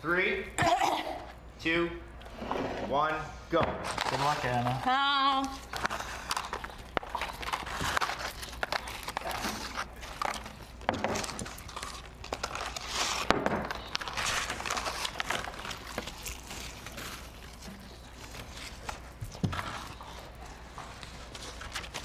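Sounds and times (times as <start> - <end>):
paper bags rustling and crinkling: 3.8 - 22.0
chewing: 5.4 - 22.0.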